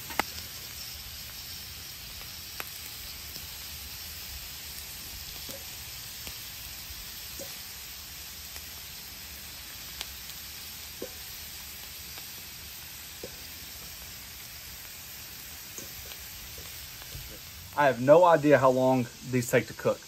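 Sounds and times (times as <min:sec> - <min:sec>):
potatoes sizzling in oil: 0:00.0 - 0:20.0
small oil pops: 0:11.0 - 0:11.3, 0:13.2 - 0:14.0, 0:15.7 - 0:17.5.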